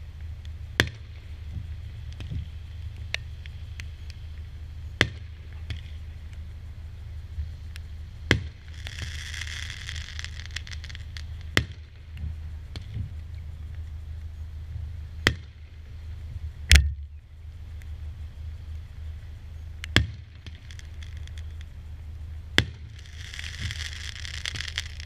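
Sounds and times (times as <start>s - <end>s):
crackling fireworks stars: 0.0s - 25.0s
low rumble: 0.0s - 25.0s
fireworks bangs: 8.2s - 13.2s, 19.6s - 25.0s.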